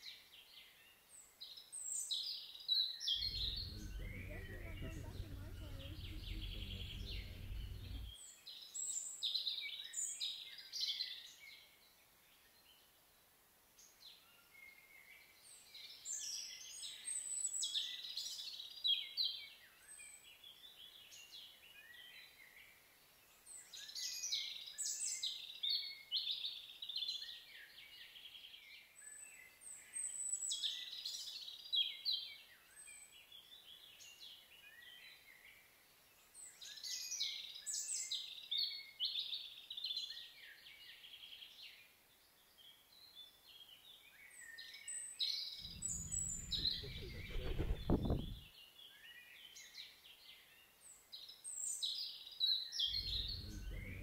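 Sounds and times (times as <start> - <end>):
songbirds chirping: 3.1 - 8.2, 45.4 - 49.2, 51.6 - 54.0
low rumble: 3.2 - 8.2, 45.6 - 48.5, 52.9 - 54.0.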